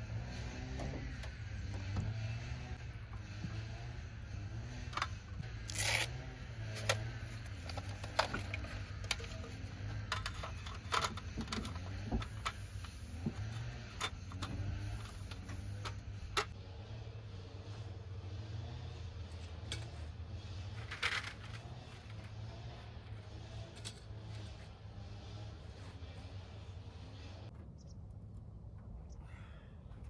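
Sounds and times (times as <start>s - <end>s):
camp gear clattering on metal table: 7.7s - 12.6s, 20.8s - 21.6s.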